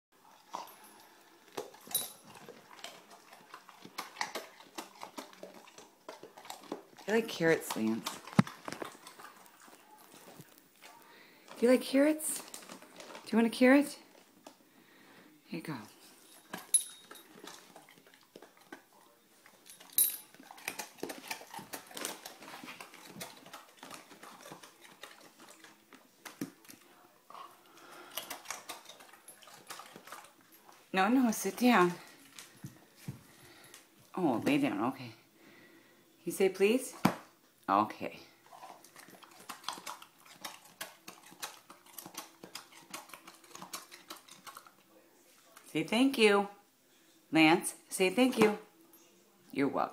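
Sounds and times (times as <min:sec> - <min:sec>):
dog crunching a raw carrot: 0:00.2 - 0:14.6, 0:16.1 - 0:34.0, 0:38.4 - 0:45.8
light metallic clinks: 0:01.8 - 0:02.3, 0:16.2 - 0:17.4, 0:19.6 - 0:20.4.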